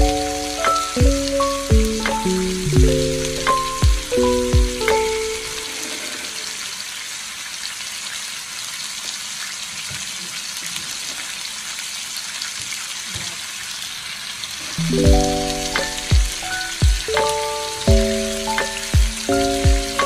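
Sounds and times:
background music with a beat: 0.0s - 6.3s, 14.8s - 20.0s
chicken sizzling in a wok: 5.3s - 20.0s.

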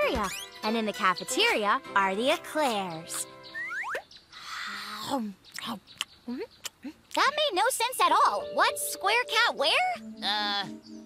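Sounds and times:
soft background music: 0.0s - 3.8s, 7.4s - 11.0s
cartoon rising swoops: 3.6s - 4.0s.

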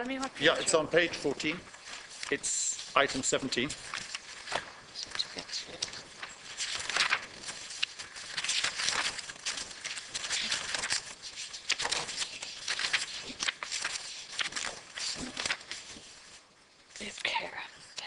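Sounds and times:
paper rustling: 0.0s - 17.4s.

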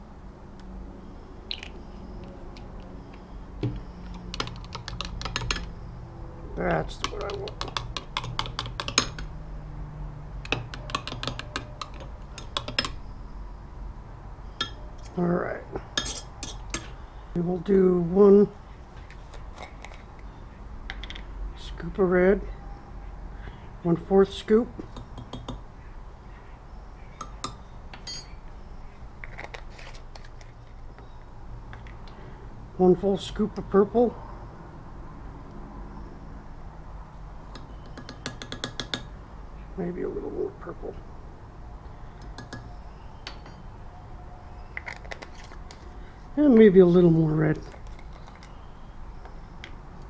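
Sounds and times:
metal stirrer clinking on glass: 27.2s - 28.3s
short metallic ring: 28.0s - 28.4s.

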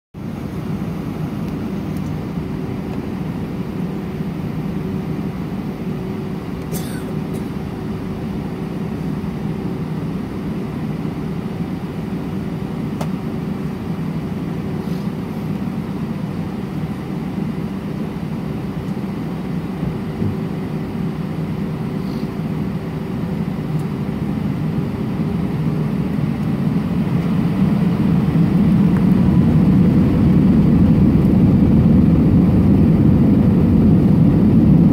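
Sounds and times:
jet engines droning: 0.2s - 34.9s.

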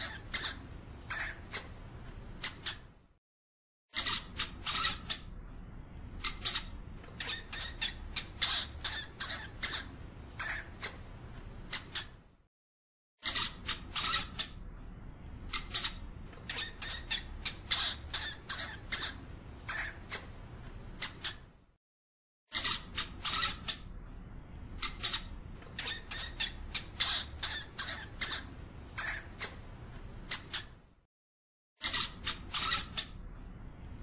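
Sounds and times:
hamster squeaking: 0.0s - 1.8s, 2.4s - 2.9s, 3.9s - 5.3s, 6.2s - 11.1s, 11.7s - 12.2s, 13.2s - 14.6s, 15.5s - 20.4s, 21.0s - 21.5s, 22.5s - 23.9s, 24.8s - 30.8s, 31.8s - 33.2s.

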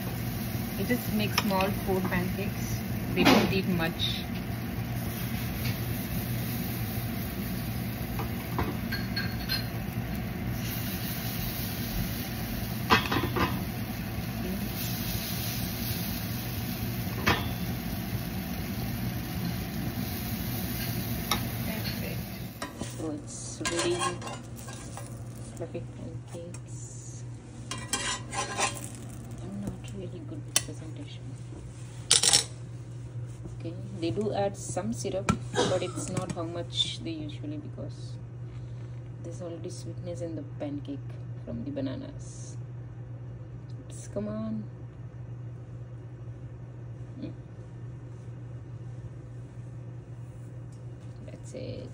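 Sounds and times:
batter sizzling on griddle: 0.0s - 25.8s, 27.6s - 29.8s
spoon clinking: 8.9s - 9.8s
metal spatula scraping pan: 23.6s - 25.1s, 27.7s - 28.9s.

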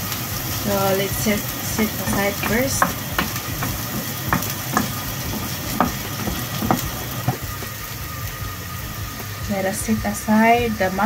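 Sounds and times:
mushrooms sizzling in frying pan: 0.0s - 11.0s
wooden spatula scraping pan: 1.7s - 7.4s.

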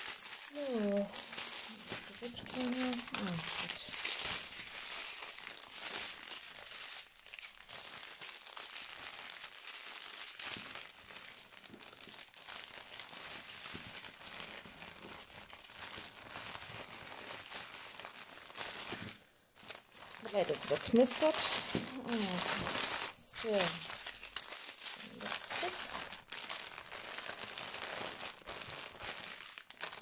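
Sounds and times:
plastic packaging crinkling: 0.0s - 30.0s.

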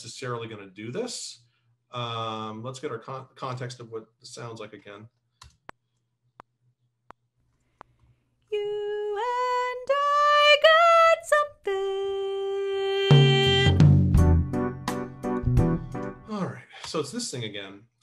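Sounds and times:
soprano voice singing: 8.5s - 13.8s.

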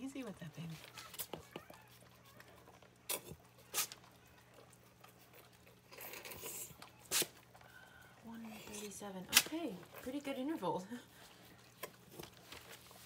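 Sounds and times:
paper rustling: 12.1s - 13.0s.

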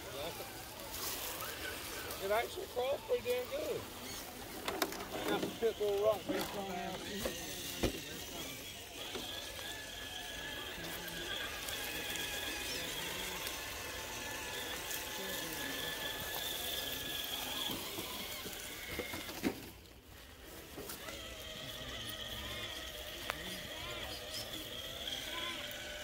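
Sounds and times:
toy truck motor whining: 0.0s - 26.0s.

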